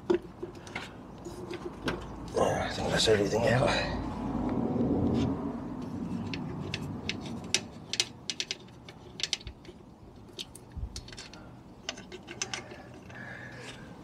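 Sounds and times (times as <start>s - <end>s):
metal and plastic parts clicking: 6.2s - 13.9s.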